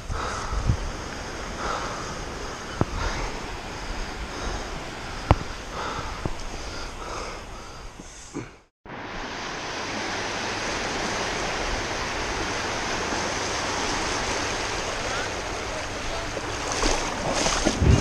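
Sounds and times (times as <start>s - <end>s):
small waves breaking on sand: 8.9s - 18.0s.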